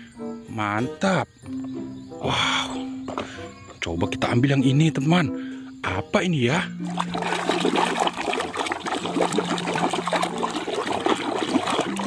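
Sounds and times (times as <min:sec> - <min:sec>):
water splashing and sloshing: 0:06.8 - 0:12.0.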